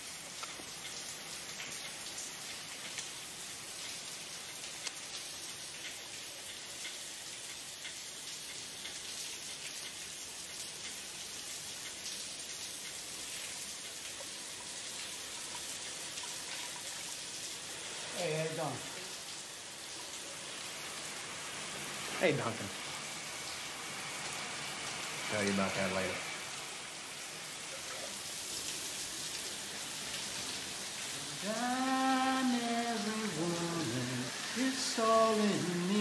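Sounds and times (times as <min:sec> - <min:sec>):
dripping water ticks: 0:00.0 - 0:36.0.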